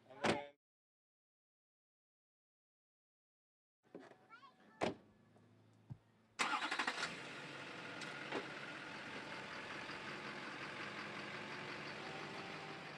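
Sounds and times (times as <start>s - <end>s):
diesel engine cranking and idling: 6.4s - 12.9s.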